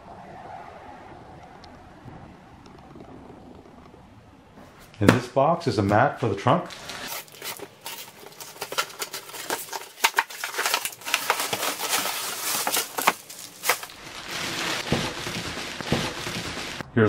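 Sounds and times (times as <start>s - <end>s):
plastic bag crinkling: 6.7s - 16.8s.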